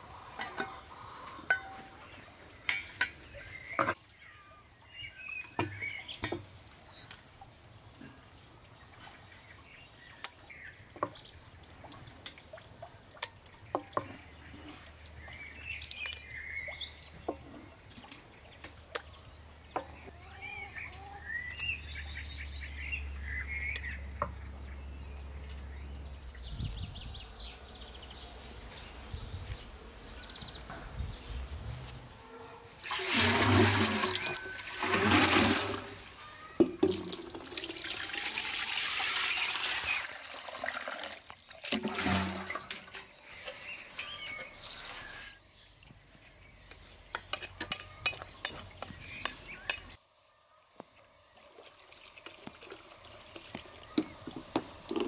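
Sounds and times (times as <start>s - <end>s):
birds chirping: 0.0s - 11.4s, 13.6s - 32.8s, 42.1s - 51.5s
wooden spoon knocking and scraping: 47.1s - 49.9s.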